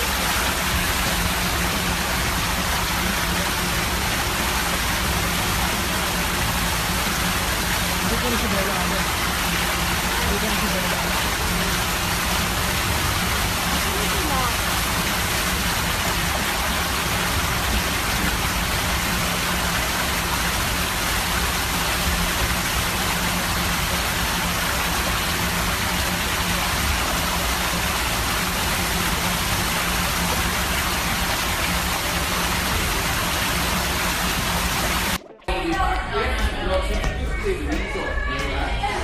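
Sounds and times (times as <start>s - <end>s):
water rushing and splashing: 0.0s - 39.0s.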